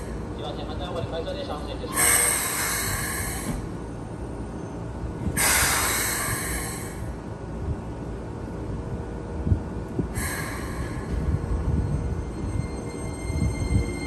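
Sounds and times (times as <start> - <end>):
low rumble of standing train: 0.0 - 14.0
air brakes hissing: 1.9 - 4.0, 5.2 - 7.2, 10.0 - 12.2.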